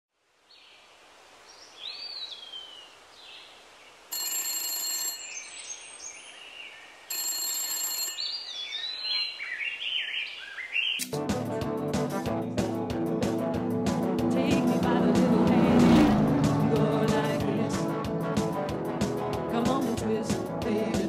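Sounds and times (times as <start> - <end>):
telephone bell ringing: 4.1 - 5.6, 7.1 - 8.5
birds chirping: 8.2 - 11.0.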